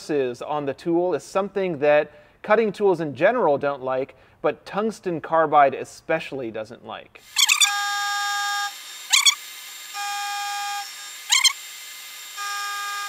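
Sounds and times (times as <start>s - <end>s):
lathe cutting steel bursts: 7.2s - 13.0s
high ringing tone: 7.4s - 9.4s, 10.0s - 11.6s.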